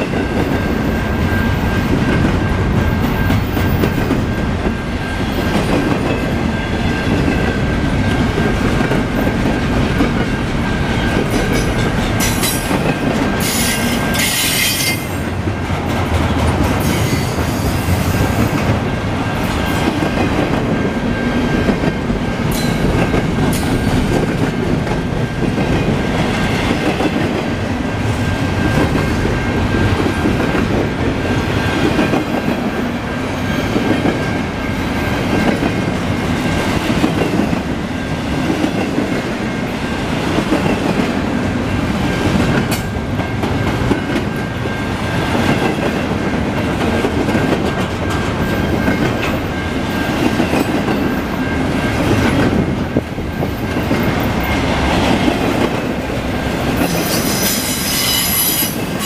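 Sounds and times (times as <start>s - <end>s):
freight train rumbling past: 0.0s - 59.0s
wheel screeches: 56.9s - 58.8s.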